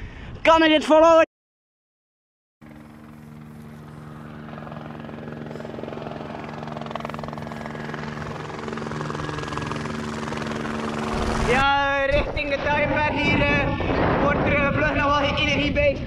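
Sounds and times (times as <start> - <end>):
low engine drone: 2.6 - 11.7
helicopter rotor beat: 2.6 - 15.6.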